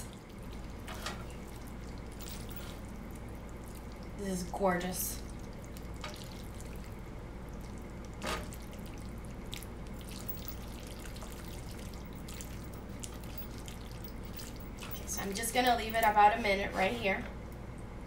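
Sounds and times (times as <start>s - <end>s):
wet squelching of pasta in sauce: 0.0s - 4.2s, 5.2s - 15.0s.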